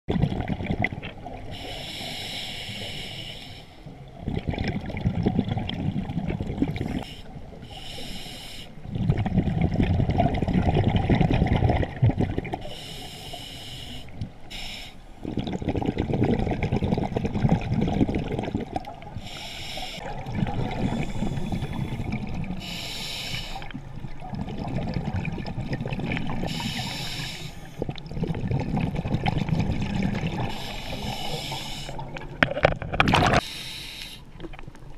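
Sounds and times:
bubbling exhale underwater: 0.1 - 1.7, 4.1 - 7.0, 8.8 - 12.7, 15.2 - 22.9, 23.5 - 33.5
hissing regulator inhale: 1.5 - 3.9, 6.9 - 8.8, 12.6 - 15.2, 19.2 - 20.0, 20.8 - 23.7, 26.4 - 27.9, 30.4 - 32.0, 33.4 - 34.3.

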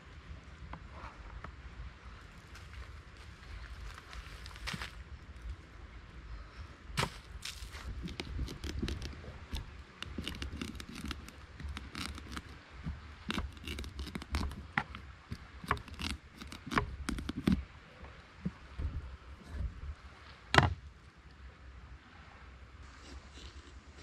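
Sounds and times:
knife cutting pumpkin rind: 7.0 - 17.6.

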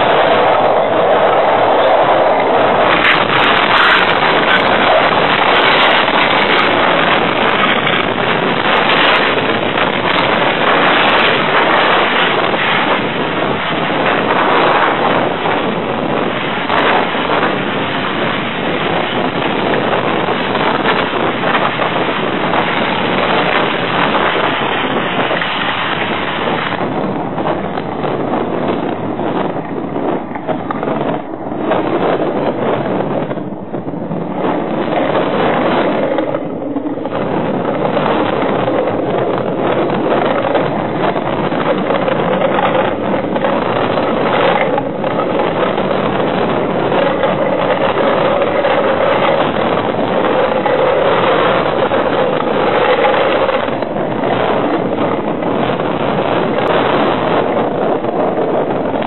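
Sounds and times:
storm wind and driving rain: 0.0 - 59.0.

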